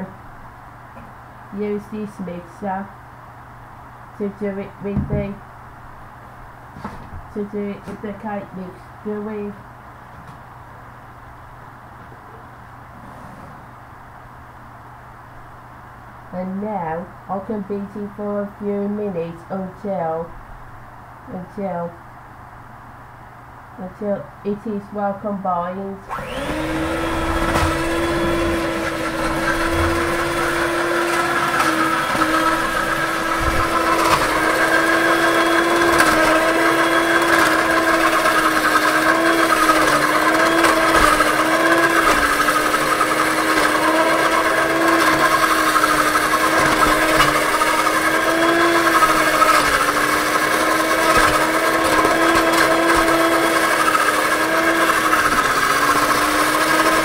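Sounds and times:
electric hand mixer running: 26.1 - 57.0.

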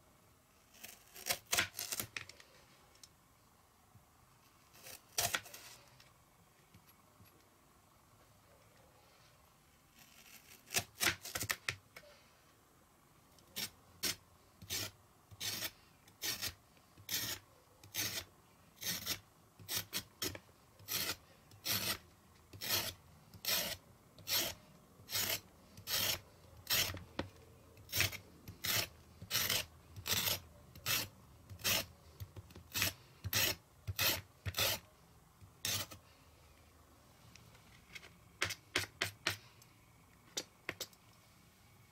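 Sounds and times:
knife scraping carrot skin: 0.7 - 2.1, 4.7 - 5.8, 10.0 - 11.6, 13.6 - 27.0, 27.9 - 34.9, 35.6 - 36.0.

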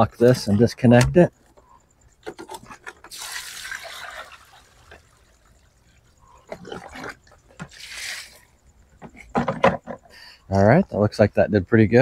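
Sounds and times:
water pouring and splashing: 3.0 - 5.6, 6.5 - 8.5.

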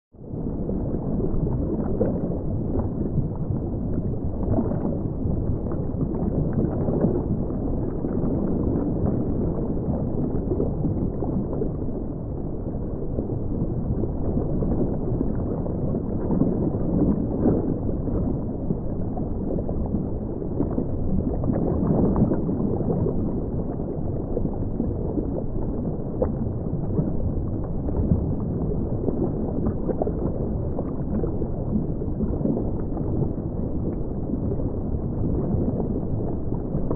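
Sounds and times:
underwater bubbling and gurgling: 0.1 - 36.9.

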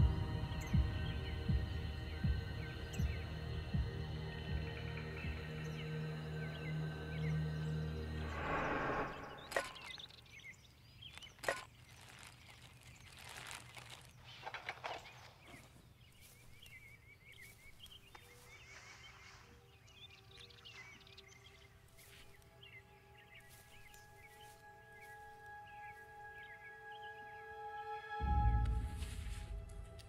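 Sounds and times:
background music: 0.0 - 10.0, 19.9 - 30.0
small birds chirping: 0.0 - 28.0
twigs cracking: 9.4 - 19.4
footsteps on pine needles and twigs: 9.4 - 27.0
rustling: 11.1 - 16.5.

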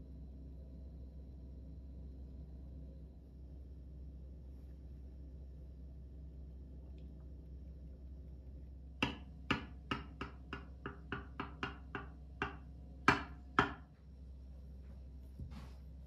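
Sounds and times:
knife knocking on glass dish: 9.0 - 13.9.

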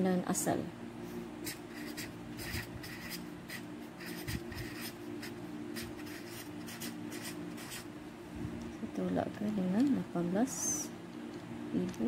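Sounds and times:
faint low hum: 0.0 - 12.0
pen scratching on paper: 1.4 - 7.8.

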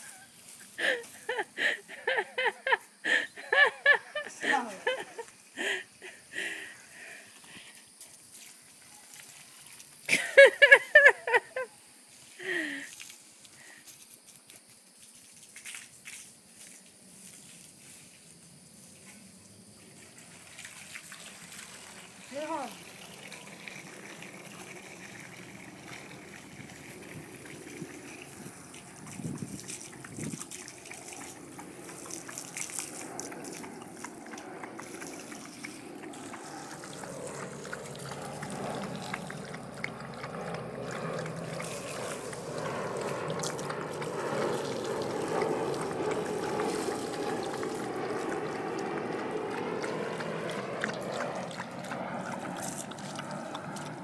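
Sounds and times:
dog lapping water from bowl: 20.5 - 54.0.

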